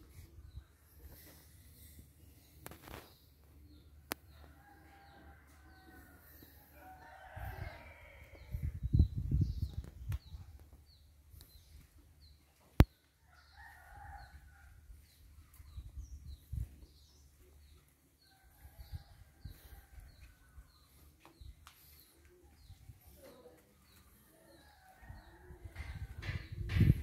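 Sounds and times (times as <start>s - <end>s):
roosters crowing: 4.4s - 8.6s.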